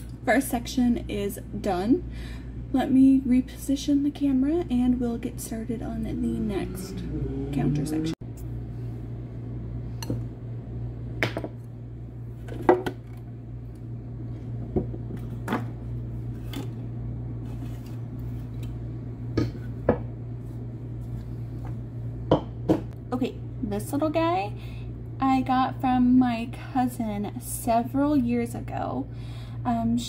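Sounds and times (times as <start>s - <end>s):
steady low hum: 0.0s - 30.0s
items knocking on countertop: 11.2s - 11.6s, 22.3s - 22.9s.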